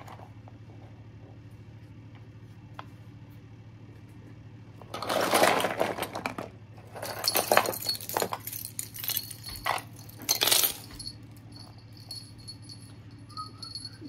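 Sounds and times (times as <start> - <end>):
plastic toys clattering: 4.8 - 12.2.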